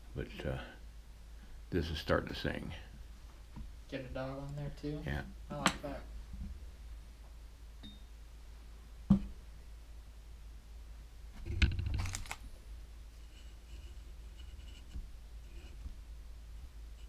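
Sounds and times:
low steady hum: 0:00.0 - 0:17.0
clicks and rustling: 0:11.4 - 0:12.4.

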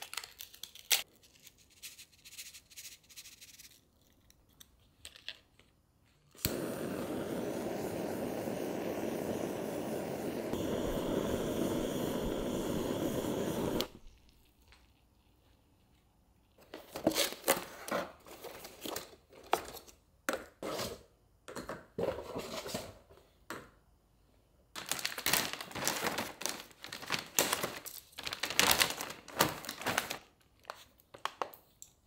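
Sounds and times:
blowtorch flame hissing: 0:06.4 - 0:14.1
blowtorch ignition click: 0:06.4 - 0:14.1.

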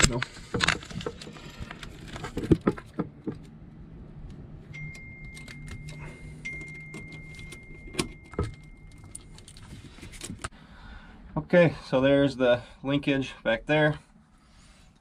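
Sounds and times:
metal hardware clinking: 0:04.7 - 0:10.5.

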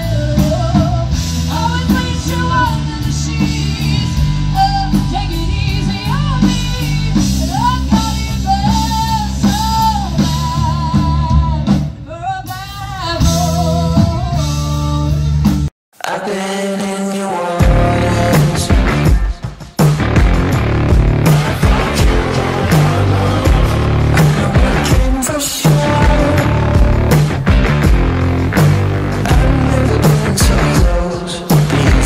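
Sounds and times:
bass guitar: 0:00.0 - 0:12.1, 0:13.0 - 0:15.7, 0:17.6 - 0:32.0
person singing: 0:00.0 - 0:15.4, 0:16.0 - 0:19.5, 0:21.3 - 0:27.2, 0:29.2 - 0:32.0
drum kit: 0:00.0 - 0:32.0
guitar: 0:00.0 - 0:32.0.

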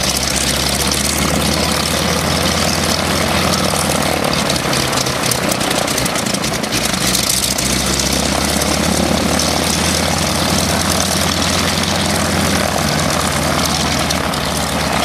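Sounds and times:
propeller engine drone: 0:00.0 - 0:15.0.

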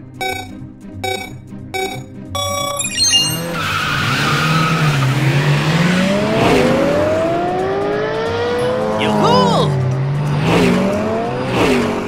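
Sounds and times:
cartoon engines revving: 0:00.2 - 0:12.0
cartoon tyres screeching: 0:02.8 - 0:06.7.

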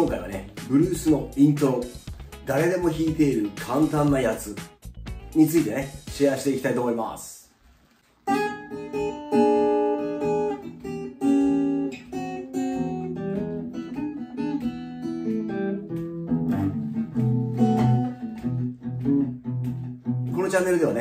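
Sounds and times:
acoustic guitar blues playing: 0:08.2 - 0:21.0.

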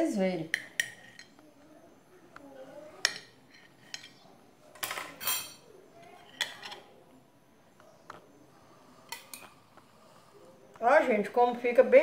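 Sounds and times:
knife clinking on ceramic plate: 0:04.8 - 0:05.7.

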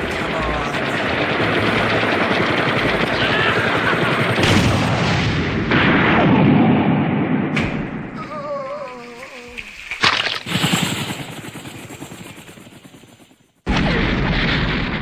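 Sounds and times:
rumbling battle blasts: 0:04.4 - 0:08.3, 0:13.7 - 0:15.0.

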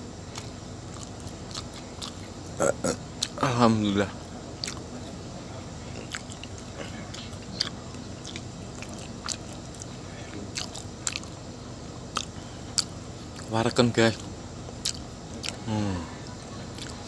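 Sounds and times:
steady low hum: 0:00.0 - 0:17.0
person chewing food: 0:00.3 - 0:03.4, 0:04.6 - 0:05.2, 0:05.9 - 0:11.4, 0:12.1 - 0:13.5, 0:14.7 - 0:15.7, 0:16.7 - 0:17.0
mouth clicks and smacks: 0:10.5 - 0:11.4, 0:14.7 - 0:15.6.

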